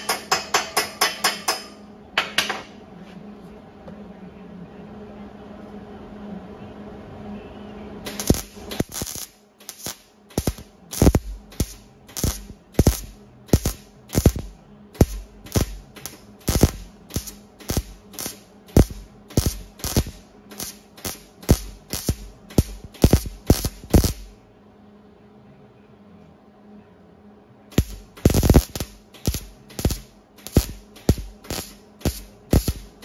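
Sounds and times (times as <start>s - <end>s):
steady low hum: 0.0s - 33.0s
welder crackling bursts: 8.1s - 24.3s, 27.7s - 33.0s.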